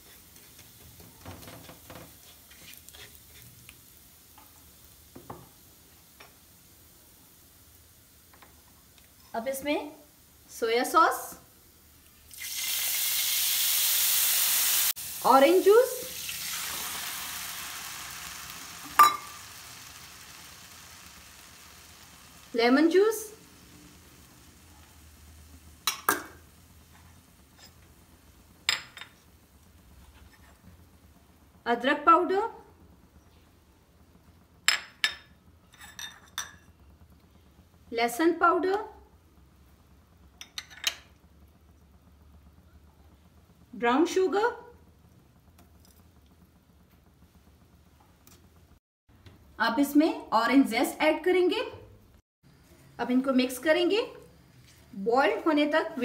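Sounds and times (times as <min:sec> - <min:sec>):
spatula stirring in pan: 0:00.0 - 0:04.7
chilli flakes sizzling in oil: 0:00.0 - 0:48.8, 0:49.6 - 0:56.0
kitchen bowls and utensils clinking: 0:18.9 - 0:19.4.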